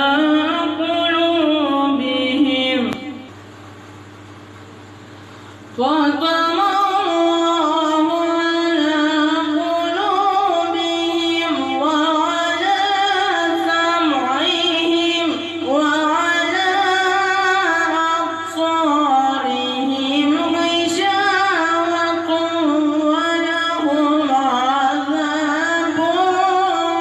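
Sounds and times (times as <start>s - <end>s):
boy chanting into microphone: 5.9s - 27.0s.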